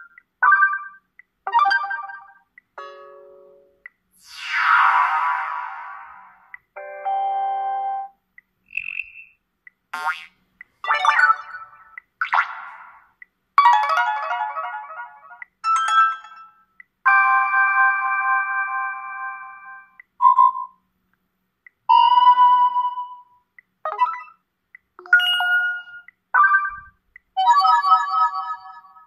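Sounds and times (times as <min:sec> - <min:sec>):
phone alert chimes and melodies: 0:06.8 - 0:08.2, 0:23.9 - 0:24.4, 0:25.0 - 0:29.0.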